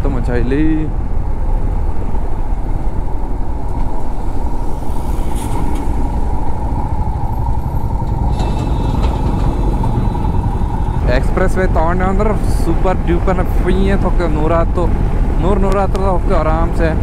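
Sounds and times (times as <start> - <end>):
road noise: 0.0 - 17.0
wind rumble: 0.0 - 17.0
motorcycle engine: 4.0 - 13.5.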